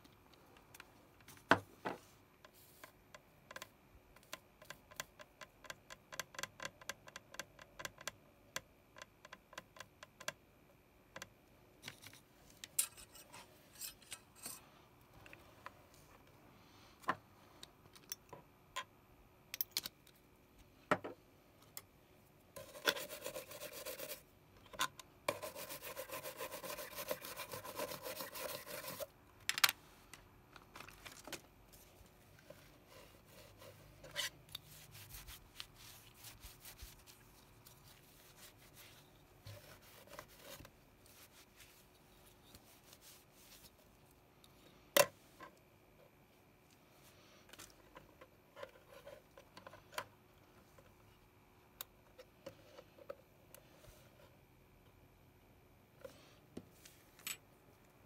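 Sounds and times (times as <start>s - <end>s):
stiff brush scrubbing circuit board: 22.6s - 24.2s, 25.3s - 29.1s, 32.8s - 41.9s.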